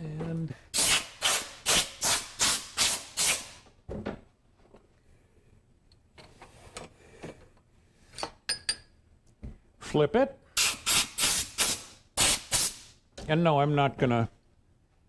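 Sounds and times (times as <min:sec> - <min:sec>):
compressed air blasts: 0:00.7 - 0:03.6, 0:10.6 - 0:13.0.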